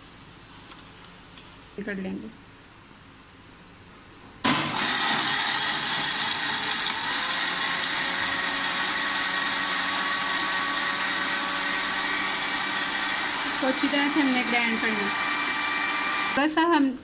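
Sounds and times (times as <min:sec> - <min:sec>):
blender motor running: 0:04.4 - 0:16.4.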